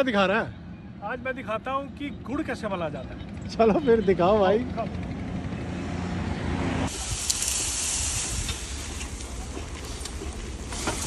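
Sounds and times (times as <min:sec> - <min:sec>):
road traffic: 0:00.0 - 0:11.0
steam hissing off boiling juice: 0:06.9 - 0:11.0.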